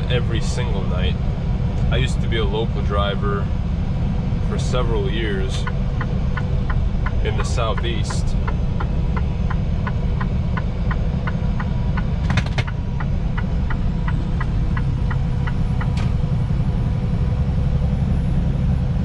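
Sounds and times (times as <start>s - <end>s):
low rumble of engine and road: 0.0s - 19.0s.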